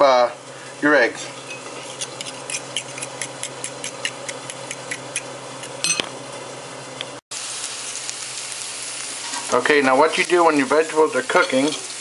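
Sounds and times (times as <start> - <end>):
fork beating eggs in bowl: 1.5 - 5.8
vegetables sizzling in frying pan: 7.3 - 12.0.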